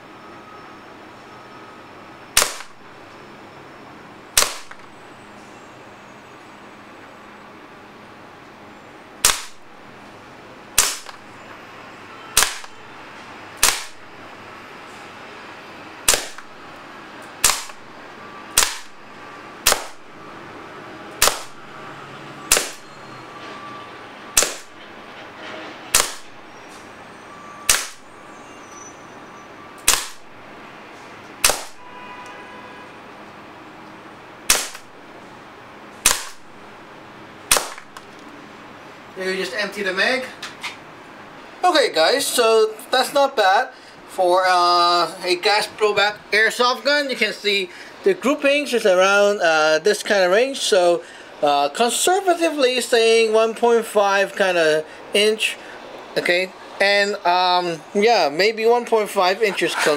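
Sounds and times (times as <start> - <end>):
airsoft pistol pops: 2.4 - 2.7, 9.2 - 9.6, 10.8 - 11.2, 12.4 - 12.8, 13.6 - 14.0, 16.1 - 16.5, 17.4 - 17.8, 18.6 - 18.9, 19.6 - 20.0, 22.5 - 22.8, 24.4 - 24.7, 26.0 - 26.2, 27.7 - 28.0, 29.8 - 30.2, 31.4 - 31.8, 34.5 - 34.9, 36.0 - 36.4, 37.5 - 38.1.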